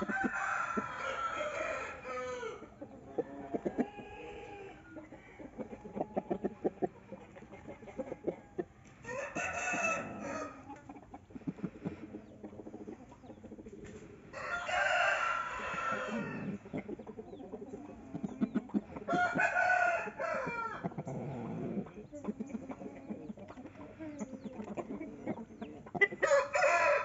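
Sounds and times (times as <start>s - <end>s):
rooster crowing: 0.0s - 2.7s, 9.1s - 10.6s, 14.3s - 16.5s, 19.1s - 20.8s, 26.2s - 27.0s.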